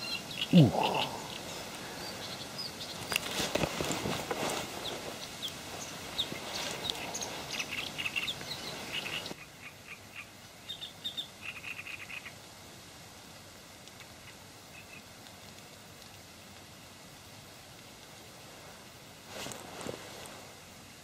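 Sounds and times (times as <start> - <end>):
small birds chirping: 0.0 - 12.4, 13.9 - 16.2
brief rustle: 3.0 - 5.2, 19.3 - 20.5.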